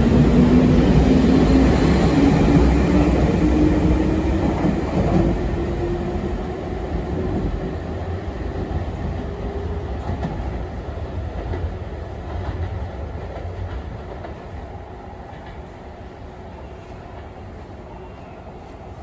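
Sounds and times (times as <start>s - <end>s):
electric train rumble and hum: 0.0s - 19.0s
train wheel clatter: 8.5s - 15.7s.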